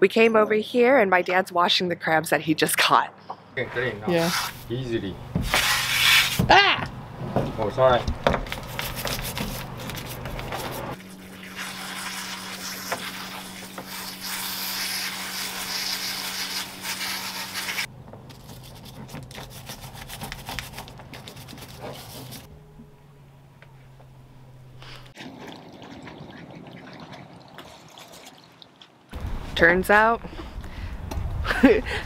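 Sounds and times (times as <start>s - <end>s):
brush scrubbing shell: 8.7s - 22.5s
hose spraying water: 10.9s - 17.9s.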